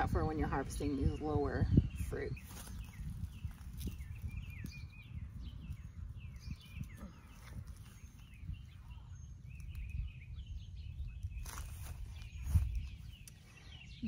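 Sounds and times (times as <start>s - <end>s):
small birds chirping: 0.0s - 14.0s
tomato vines rustling: 2.2s - 13.7s.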